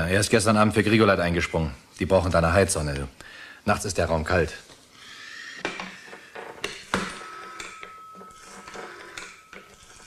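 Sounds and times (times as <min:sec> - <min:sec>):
faint steady tone: 0:05.8 - 0:10.0.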